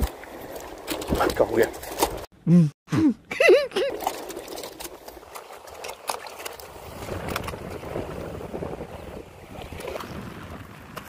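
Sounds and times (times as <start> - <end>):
water washing against rocks: 3.9 - 11.0
wind rumbling on microphone: 6.6 - 11.0.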